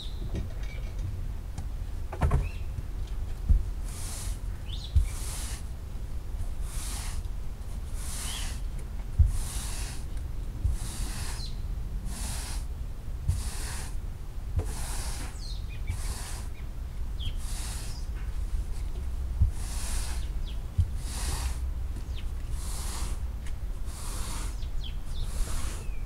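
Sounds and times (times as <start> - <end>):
dull thump: 2.1 - 3.8, 9.1 - 9.7, 18.2 - 22.3
scrub brush swishing on wet rug: 3.5 - 4.4, 5.0 - 5.7, 6.4 - 14.0, 14.6 - 16.6, 17.3 - 21.8, 22.4 - 24.6.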